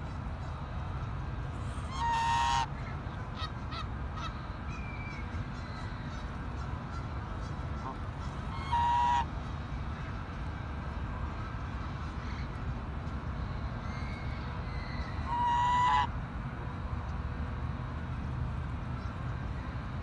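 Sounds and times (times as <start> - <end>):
goose honking: 1.8 - 2.8, 7.7 - 9.3, 15.3 - 16.1.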